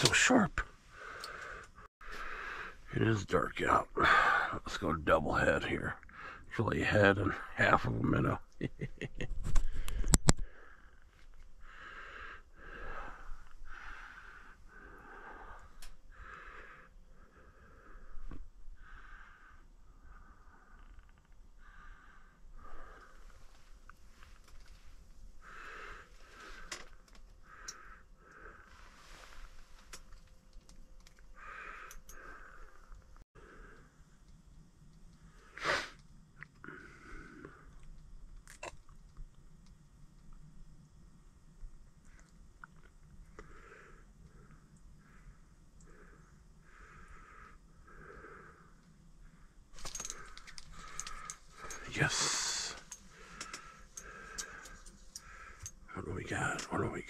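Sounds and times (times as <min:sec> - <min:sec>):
man breathing: 0:00.8 - 0:02.9, 0:04.0 - 0:04.7, 0:06.1 - 0:06.5, 0:09.6 - 0:30.2, 0:31.3 - 0:34.0, 0:36.6 - 0:37.8, 0:43.3 - 0:56.6
man sniffling congested nose: 0:35.6 - 0:36.0.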